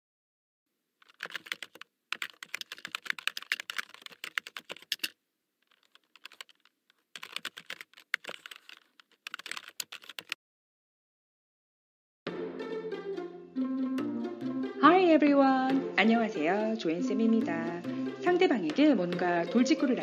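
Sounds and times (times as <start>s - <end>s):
computer keyboard typing: 1.0s - 10.4s, 18.7s - 20.0s.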